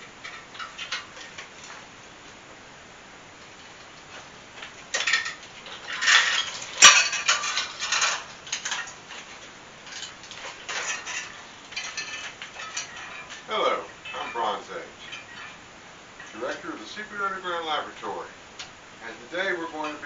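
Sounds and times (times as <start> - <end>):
metal chain clinking and rattling: 4.8 - 16.6
sharp metal clank: 9.9 - 15.6.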